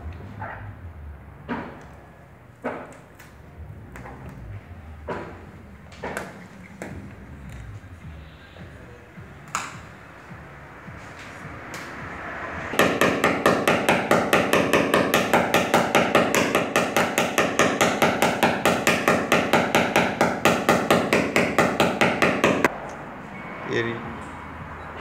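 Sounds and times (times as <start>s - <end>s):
hammer tapping punch on sheet metal: 12.7s - 22.7s.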